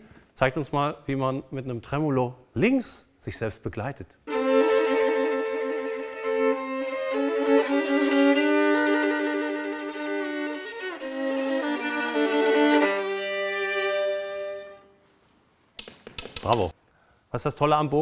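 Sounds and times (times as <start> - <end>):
solo violin melody with tremolo: 4.3 - 15.0.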